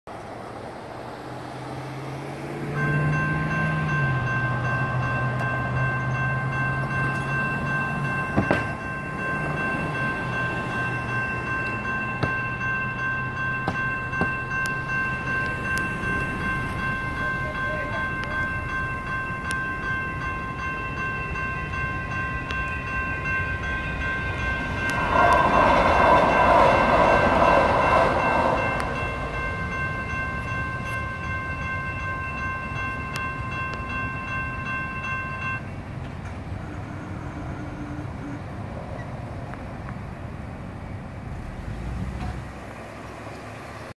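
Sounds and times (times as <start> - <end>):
light rail train passing: 0.1 - 44.0
electronic crossing bell ringing: 1.9 - 35.9.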